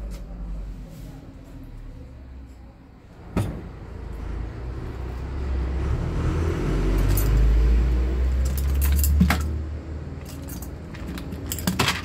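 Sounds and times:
passing motor vehicle rumble: 0:03.1 - 0:11.5
small clinks: 0:07.0 - 0:07.5, 0:08.3 - 0:09.6, 0:10.2 - 0:12.0.

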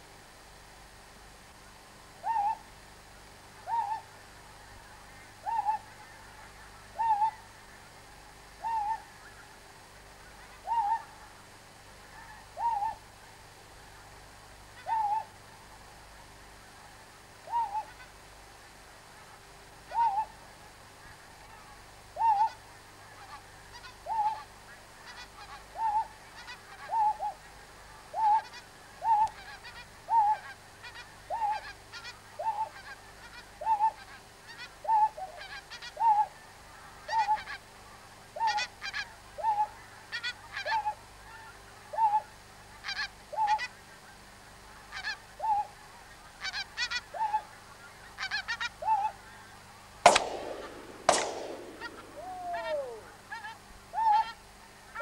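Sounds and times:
goose honking: 0:23.1 - 0:27.0, 0:28.2 - 0:28.6, 0:29.3 - 0:34.7, 0:42.8 - 0:43.8, 0:44.7 - 0:45.2, 0:46.3 - 0:49.6, 0:51.7 - 0:54.4
shotgun shots: 0:50.1 - 0:53.0.

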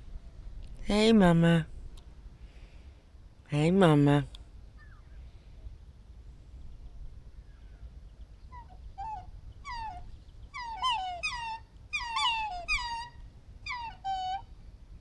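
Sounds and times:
swans calling: 0:08.5 - 0:14.5.

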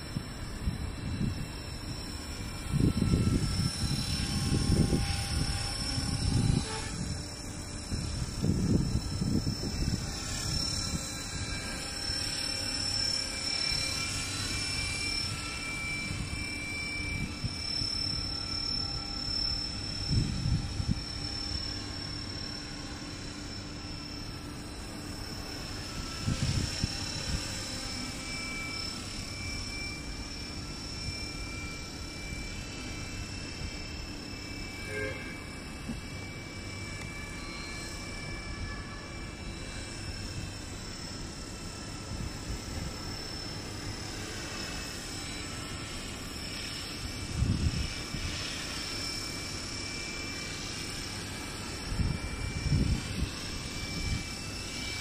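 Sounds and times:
wind rumble on microphone: 0:00.0 - 0:11.9, 0:14.3 - 0:21.7, 0:25.4 - 0:27.6, 0:47.0 - 0:48.8, 0:51.9 - 0:55.0
model helicopter motor whine: 0:00.0 - 0:55.0.

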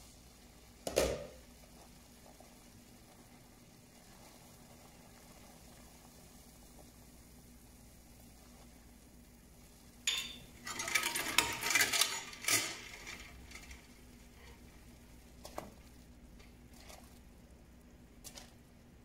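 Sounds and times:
spoon stirring ice in metal pot: 0:10.1 - 0:14.7.

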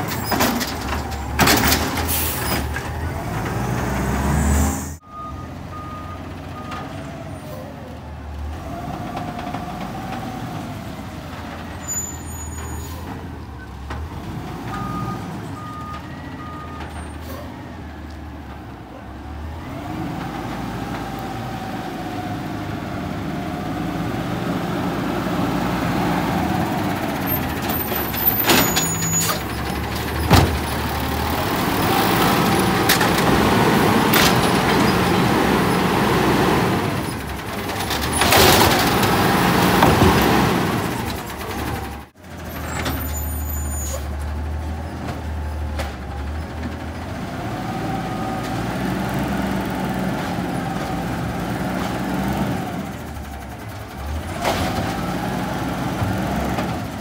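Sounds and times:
garbage truck engine running: 0:00.0 - 0:04.2, 0:05.0 - 0:57.0
short reversing beeps: 0:05.0 - 0:06.7.

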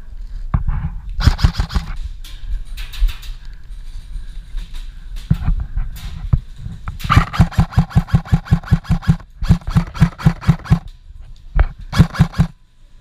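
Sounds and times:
airsoft rifle rapid shots: 0:01.2 - 0:02.0, 0:07.1 - 0:10.9, 0:11.9 - 0:12.6.

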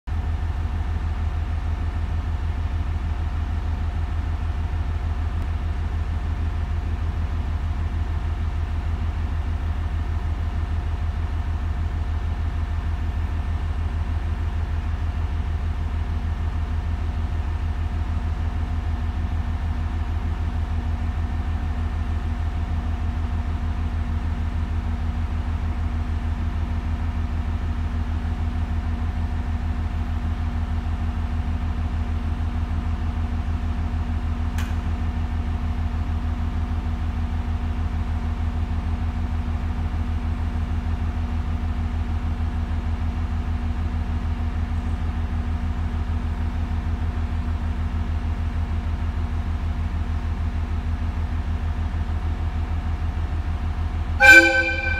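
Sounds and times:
train machinery humming: 0:53.1 - 0:54.9
high steady tone: 0:54.2 - 0:54.9
second tone: 0:54.2 - 0:54.9.

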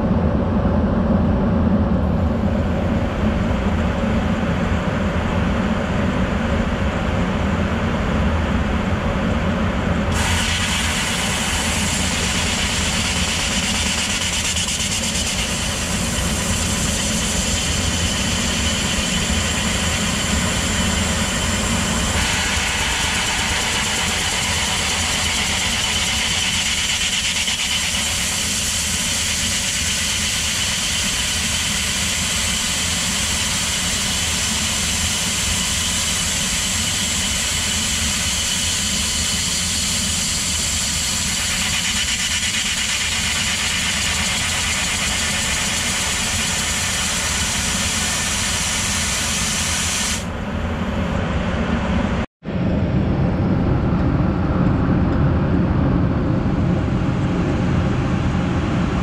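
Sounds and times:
blower hissing: 0:10.0 - 0:50.4
mirror-processing machine running: 0:10.1 - 0:50.3.

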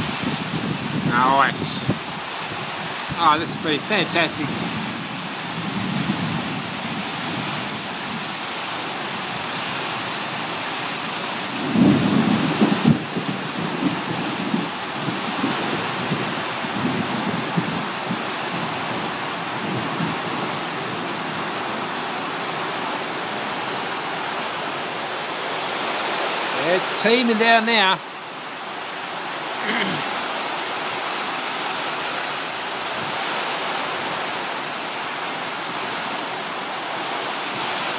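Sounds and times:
heavy rain: 0:00.0 - 0:37.9
thunder rumbling: 0:11.6 - 0:21.6.

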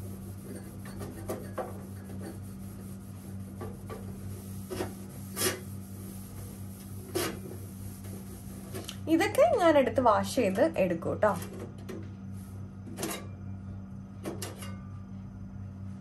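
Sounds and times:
cloth rubbing stovetop: 0:00.0 - 0:09.0.

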